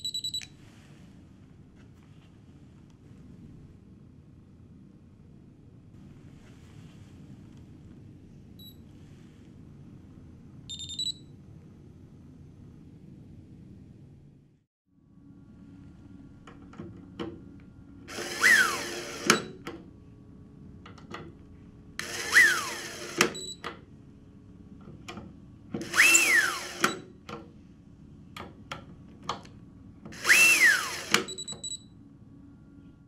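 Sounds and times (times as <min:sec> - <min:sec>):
electric screwdriver motor whine: 0:18.1 - 0:19.5, 0:22.0 - 0:23.5, 0:25.8 - 0:27.0, 0:30.2 - 0:31.4.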